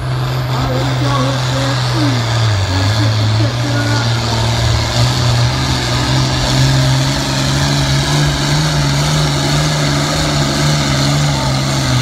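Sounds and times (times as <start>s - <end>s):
tractor diesel engine under load: 0.0s - 12.0s.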